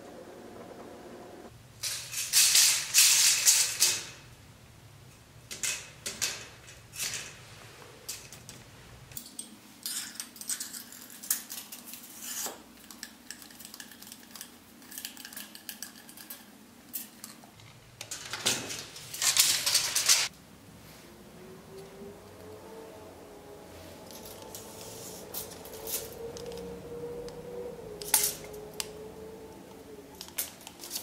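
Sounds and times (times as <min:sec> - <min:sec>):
tape measure rattling and clicking: 0:19.0 - 0:20.3.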